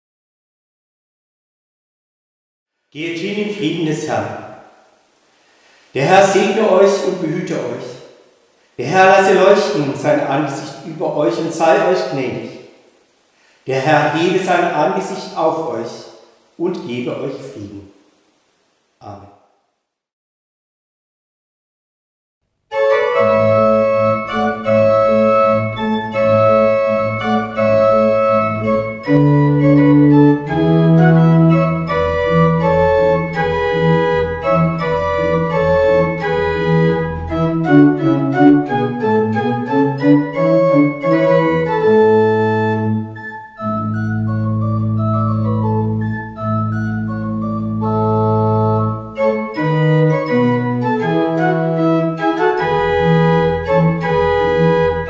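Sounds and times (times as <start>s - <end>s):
pipe organ playing: 6.0s - 8.0s, 8.8s - 12.6s, 13.7s - 16.0s, 22.7s - 55.0s.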